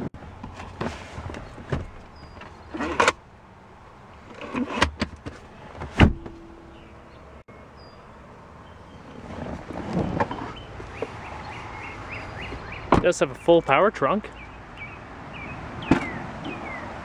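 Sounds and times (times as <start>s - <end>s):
armrest clunking: 4.3s - 6.6s.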